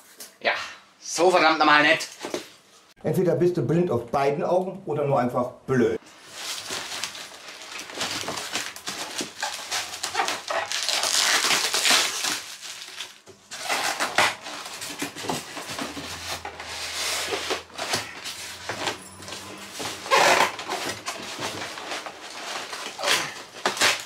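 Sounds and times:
plastic wrap crinkling: 6.0s - 24.0s
styrofoam squeaking: 6.1s - 24.0s.

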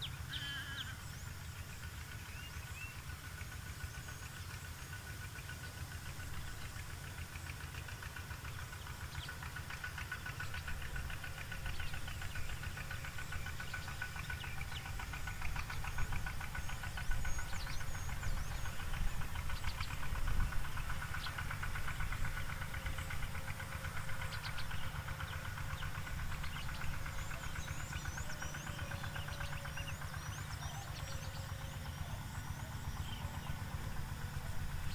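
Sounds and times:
continuous high tone: 10.0s - 34.9s.

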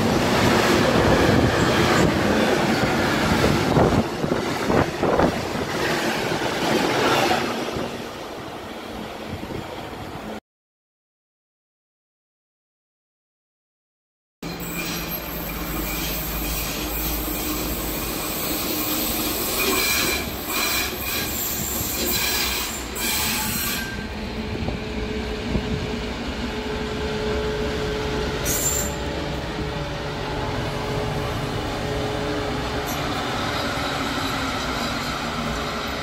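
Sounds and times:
wheels squealing on rails: 14.4s - 24.2s, 26.7s - 29.5s, 31.9s - 36.0s.

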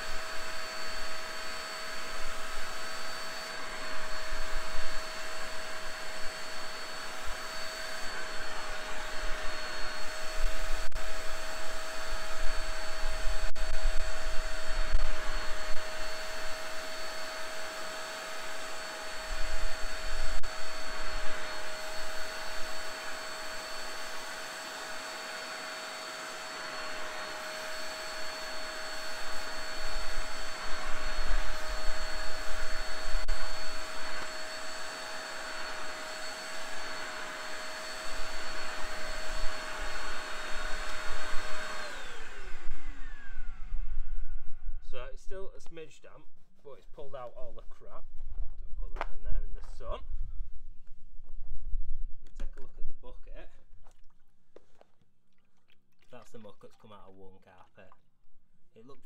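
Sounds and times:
spot cleaner motor whine: 0.0s - 44.8s.

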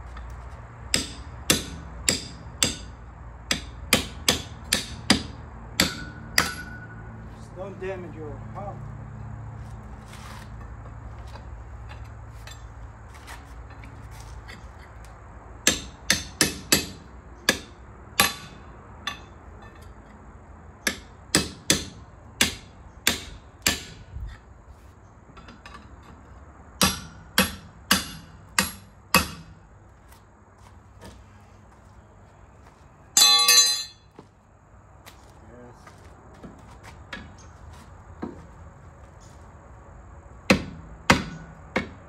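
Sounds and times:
hammer striking metal: 0.9s - 7.1s, 15.6s - 19.8s, 26.8s - 29.5s, 33.2s - 34.1s.

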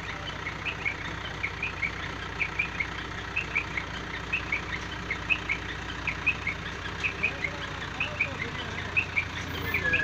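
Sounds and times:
heavy vehicle engine running: 0.0s - 10.0s.

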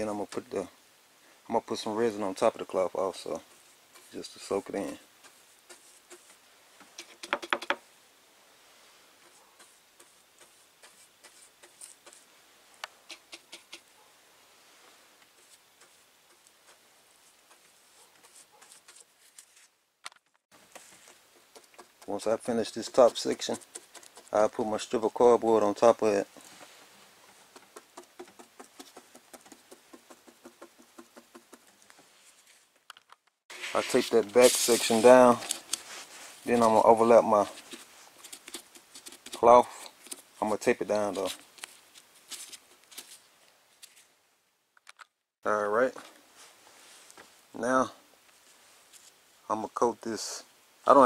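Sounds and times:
brush dabbing resin: 3.1s - 7.1s, 9.2s - 12.3s, 15.2s - 19.7s, 20.6s - 32.4s, 33.5s - 43.2s.

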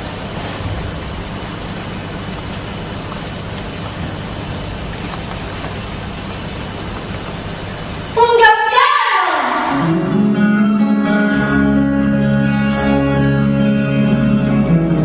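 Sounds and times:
steady rushing noise: 0.0s - 8.2s.

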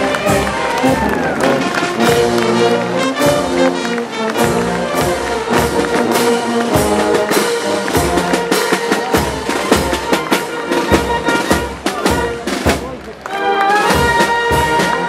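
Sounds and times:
drums keeping steady beat: 0.0s - 3.7s, 4.3s - 15.0s
brass band music: 0.0s - 15.0s.

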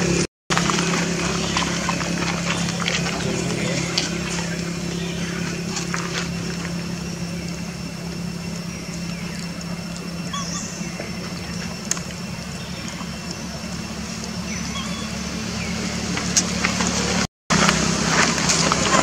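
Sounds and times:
motor humming: 0.0s - 19.0s
faint chirps: 3.4s - 15.8s.

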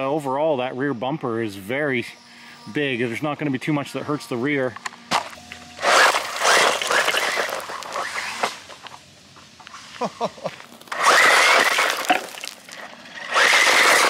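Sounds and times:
rc car motor whining: 0.8s - 10.0s, 10.6s - 14.0s
tyres spraying dirt: 5.1s - 14.0s.

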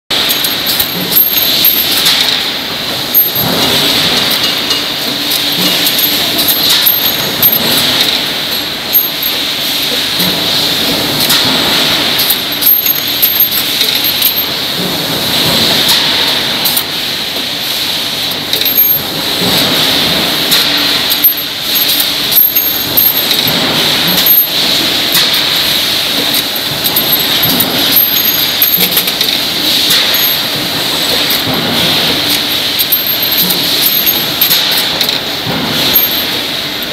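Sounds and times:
mechanical hum: 0.1s - 36.9s
metal parts clinking: 3.1s - 8.3s, 12.2s - 14.6s, 20.6s - 31.5s, 32.1s - 35.2s.

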